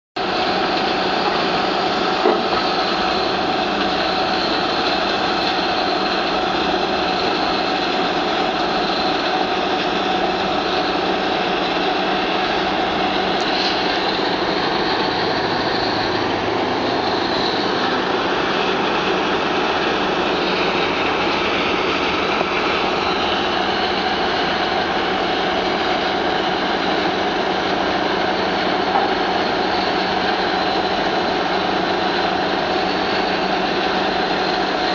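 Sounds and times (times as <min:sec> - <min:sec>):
impact crusher crushing rubble: 0:00.8 - 0:15.6.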